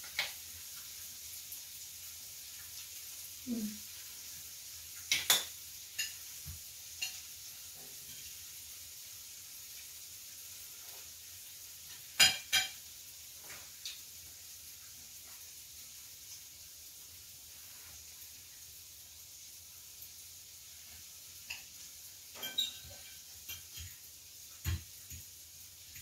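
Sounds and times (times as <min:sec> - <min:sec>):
food sizzling on a grill: 0:00.0 - 0:26.0
cutlery and dishes clinking: 0:05.0 - 0:06.3, 0:07.0 - 0:08.4, 0:11.9 - 0:12.8, 0:21.4 - 0:24.0.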